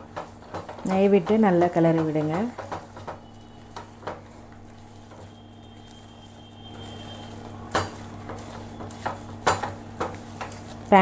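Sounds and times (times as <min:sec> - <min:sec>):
spatula knocking against pan: 0:00.0 - 0:04.3, 0:07.7 - 0:10.6
batter being stirred in a pan: 0:00.0 - 0:11.0
faint sizzle: 0:00.0 - 0:11.0.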